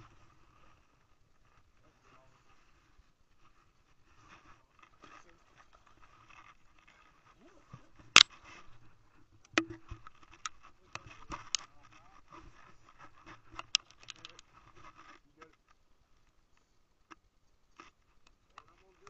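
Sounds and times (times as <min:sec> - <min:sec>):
sharp clicks: 0:13.6 - 0:14.4.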